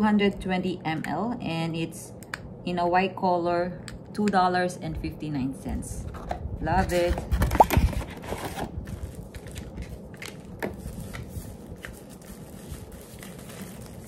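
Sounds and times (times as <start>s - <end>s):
packaging rustling and crinkling: 7.1s - 14.0s.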